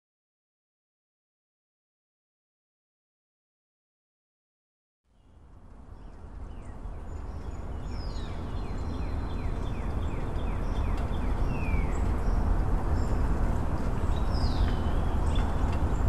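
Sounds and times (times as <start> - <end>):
bird chirping: 5.1 - 16.0.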